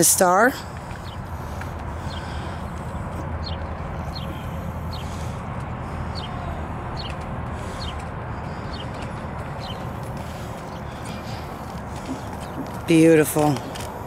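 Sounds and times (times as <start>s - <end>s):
steady low rumble: 0.0s - 14.0s
bird chirping: 0.9s - 2.7s, 3.4s - 5.4s, 6.0s - 13.6s
hooves crunching on gravel: 7.0s - 14.0s.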